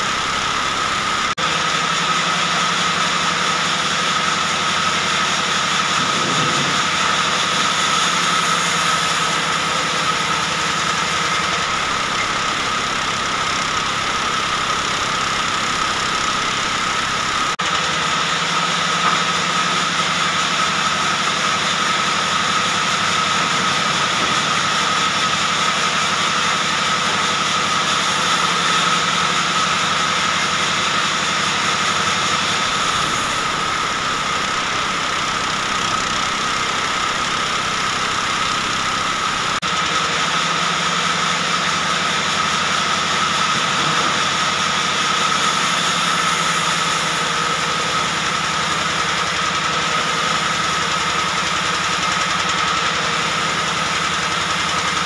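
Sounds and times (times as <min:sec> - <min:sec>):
band saw cutting log: 0:00.0 - 0:55.0.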